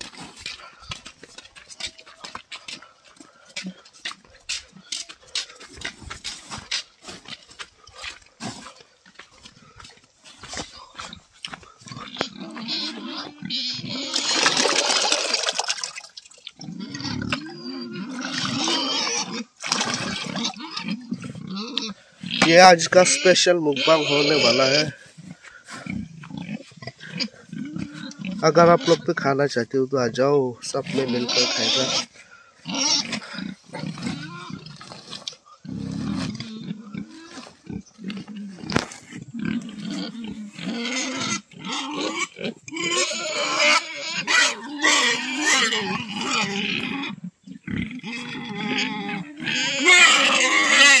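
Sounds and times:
pigs grunting: 0:00.0 - 0:51.0
slurry pouring into water: 0:14.3 - 0:16.5.

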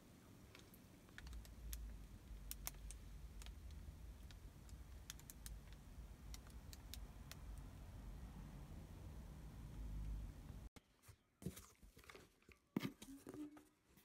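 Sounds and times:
low steady hum: 0:00.0 - 0:10.7.

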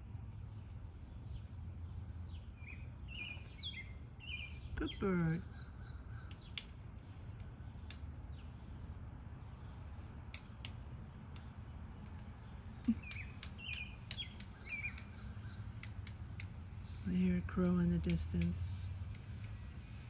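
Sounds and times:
low outdoor rumble: 0:00.0 - 0:20.0
crow cawing in distance: 0:05.4 - 0:06.6
sharp clicks: 0:06.2 - 0:08.6, 0:09.9 - 0:19.7.

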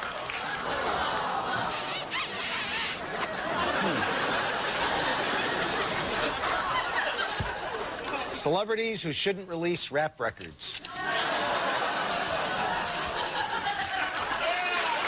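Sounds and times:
audience applauding: 0:00.0 - 0:02.1, 0:11.0 - 0:15.0
audience laughing: 0:00.0 - 0:08.4, 0:10.9 - 0:15.0.

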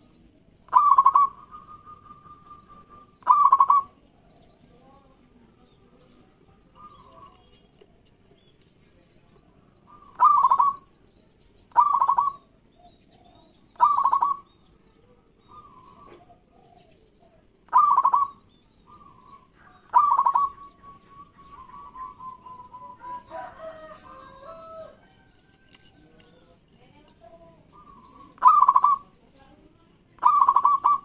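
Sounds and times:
dove cooing: 0:00.7 - 0:04.4, 0:06.6 - 0:07.4, 0:09.8 - 0:10.9, 0:11.7 - 0:14.5, 0:15.4 - 0:26.3, 0:27.3 - 0:29.2, 0:30.2 - 0:31.0.

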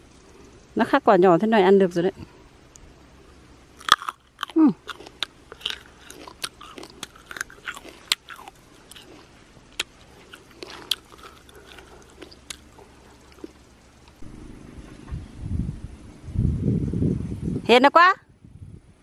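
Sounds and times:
biting and chewing firm fruit: 0:03.8 - 0:14.4.

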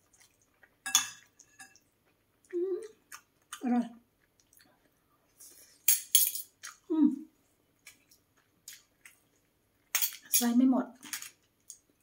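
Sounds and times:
person chewing and smacking: 0:00.0 - 0:03.6, 0:04.2 - 0:05.4, 0:07.8 - 0:09.9
person humming: 0:02.5 - 0:02.9.

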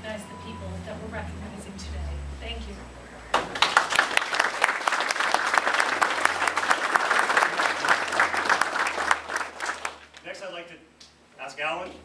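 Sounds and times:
audience applauding: 0:03.3 - 0:10.3.

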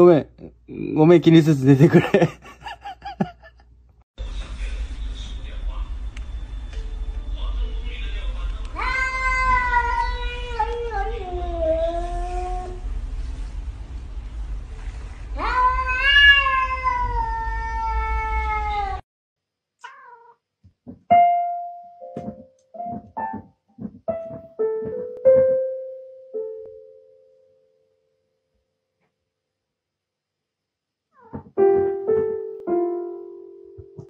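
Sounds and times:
cat meowing: 0:08.7 - 0:12.8, 0:15.4 - 0:19.0, 0:19.8 - 0:20.4, 0:31.2 - 0:31.5
electronic keyboard notes: 0:21.1 - 0:27.8, 0:31.6 - 0:34.0.

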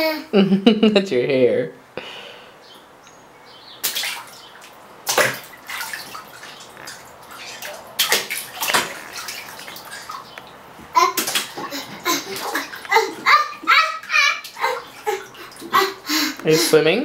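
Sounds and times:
child splashing bath water: 0:03.8 - 0:17.0.

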